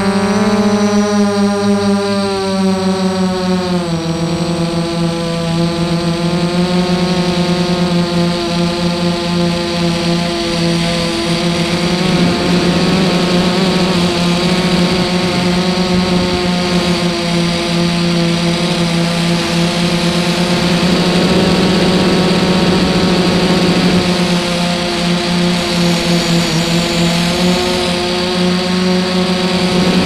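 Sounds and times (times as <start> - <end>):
drone propellers buzzing: 0.0 - 30.0.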